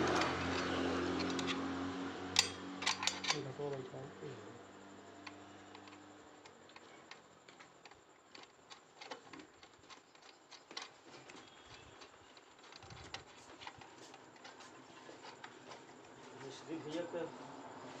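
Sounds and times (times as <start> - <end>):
metal parts clicking and tapping: 0.0 - 1.6, 2.3 - 3.9, 5.2 - 16.2.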